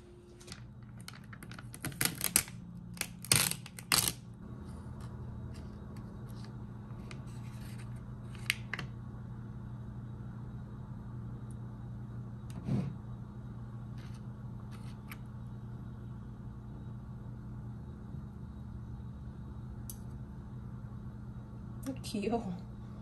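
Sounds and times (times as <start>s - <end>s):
low hum: 0.0s - 23.0s.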